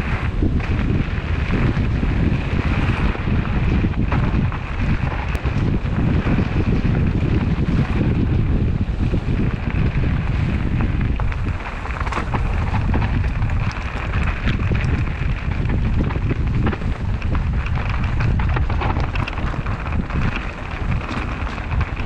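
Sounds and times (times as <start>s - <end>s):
bike clicks and rattles: 0.0s - 22.0s
mountain bike rolling over gravel: 0.0s - 22.0s
wind buffeting microphone: 0.0s - 22.0s.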